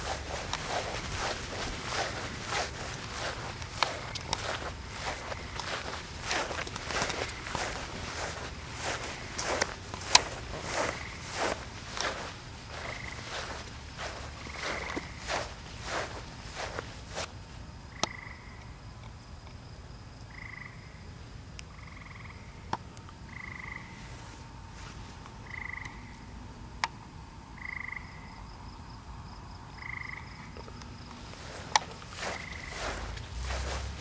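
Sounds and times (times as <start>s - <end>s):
frog croaking: 0.0s - 15.5s, 17.9s - 18.8s, 20.3s - 21.0s, 21.7s - 22.7s, 23.3s - 24.0s, 25.4s - 26.4s, 27.6s - 28.5s, 29.7s - 30.8s.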